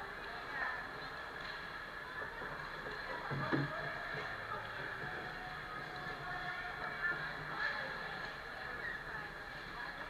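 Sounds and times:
ice rink hiss and hum: 0:00.0 - 0:10.0
skates and sticks bumping: 0:00.0 - 0:10.0.

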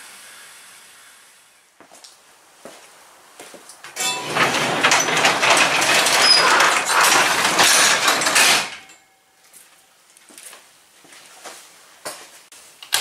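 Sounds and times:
garage door rollers rattling: 0:03.9 - 0:09.0.

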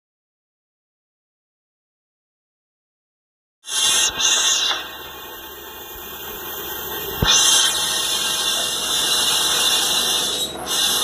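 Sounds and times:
high hiss: 0:03.7 - 0:11.0
lathe running: 0:04.1 - 0:11.0.

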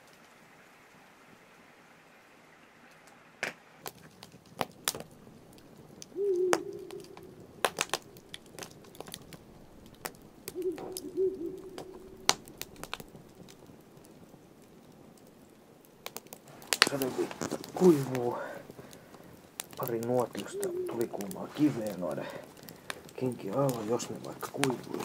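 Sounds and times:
campfire crackling and popping: 0:02.9 - 0:25.0
low hooting tone: 0:06.1 - 0:09.7, 0:10.4 - 0:12.9, 0:19.8 - 0:22.2.

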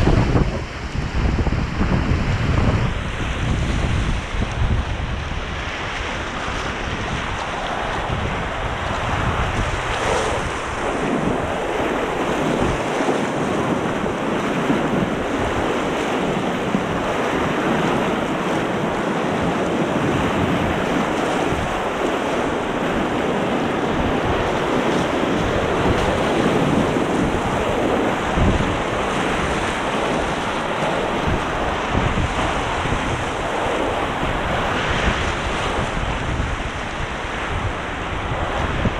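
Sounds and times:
whitewater rapids rushing: 0:00.0 - 0:38.9.

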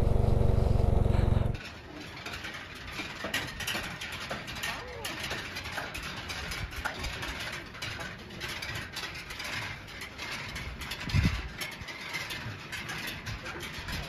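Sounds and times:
motorcycle riding: 0:00.0 - 0:01.6
fast mechanical clicking rattle: 0:02.3 - 0:14.0.

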